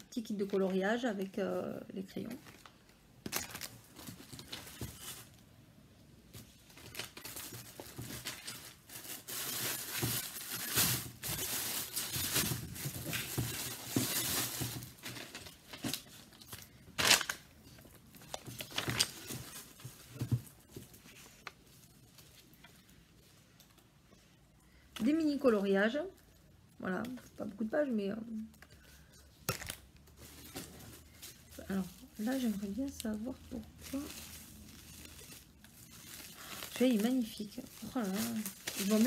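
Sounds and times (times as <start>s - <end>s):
packaging rustling and tearing: 2.5s - 5.4s, 6.4s - 22.5s, 29.4s - 39.0s.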